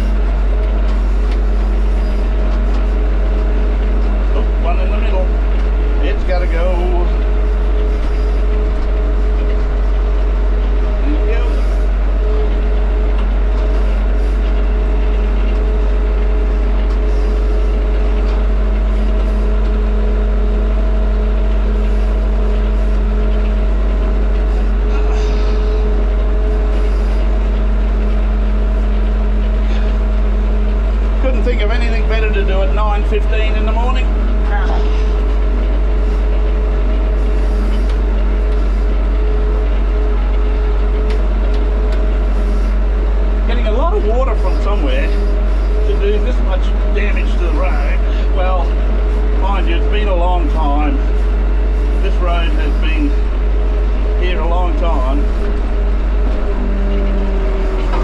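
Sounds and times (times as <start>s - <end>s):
steady drivetrain whine: 0.0s - 58.0s
tractor engine droning: 0.0s - 58.0s.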